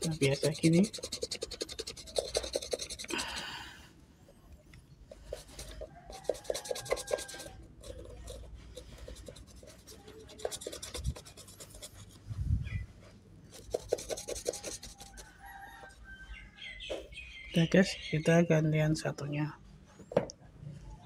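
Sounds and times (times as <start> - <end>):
toothbrush scrubbing shoe: 0.0 - 3.5, 5.1 - 12.2, 13.5 - 15.4.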